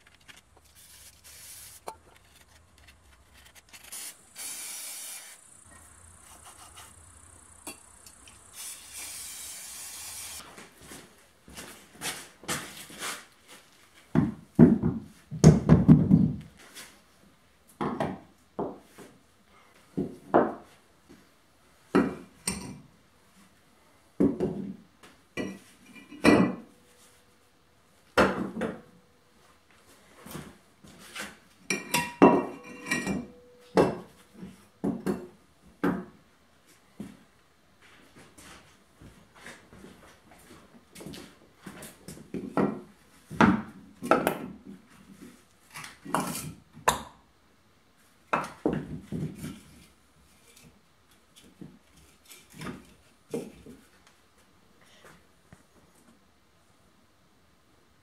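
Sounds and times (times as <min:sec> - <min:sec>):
brief hiss: 0:08.5 - 0:10.4.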